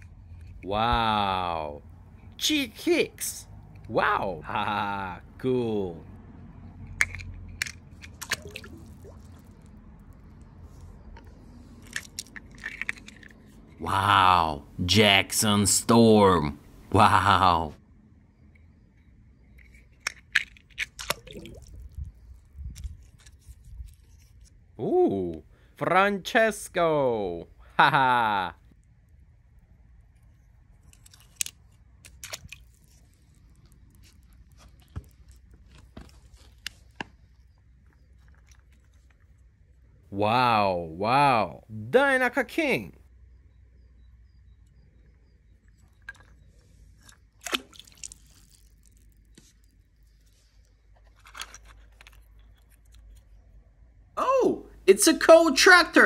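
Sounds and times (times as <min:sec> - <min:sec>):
toy car clicking on stone: 0:06.8 - 0:08.4, 0:11.1 - 0:13.8, 0:19.5 - 0:21.3
water splashes and drips: 0:06.9 - 0:11.0, 0:20.0 - 0:24.0, 0:30.9 - 0:39.5, 0:45.8 - 0:50.3.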